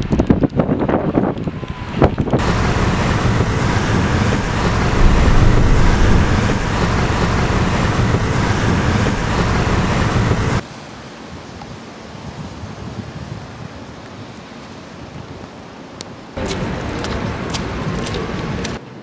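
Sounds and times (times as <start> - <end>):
car road and wind noise: 0.0 - 10.7, 16.4 - 19.0
hiss of falling rain: 2.1 - 18.8.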